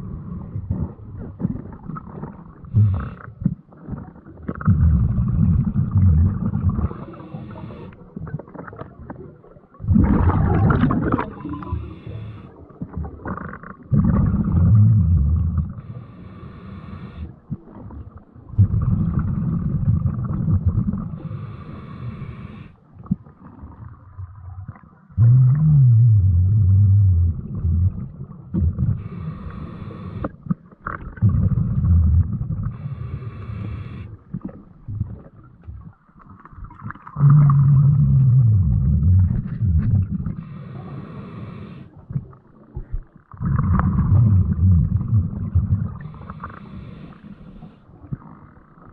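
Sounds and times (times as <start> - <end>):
exhaled bubbles rumbling underwater: 0.0 - 48.9
regulator inhale hiss: 6.8 - 8.1, 11.5 - 12.6, 15.8 - 17.4, 21.1 - 22.8, 28.9 - 30.4, 32.7 - 34.2, 40.2 - 42.0, 46.0 - 47.9.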